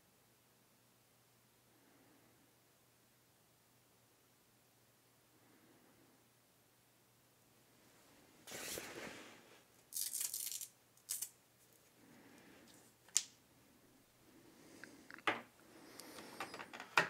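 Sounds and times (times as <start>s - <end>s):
rustling scrapes of packaging: 8.5s - 9.4s.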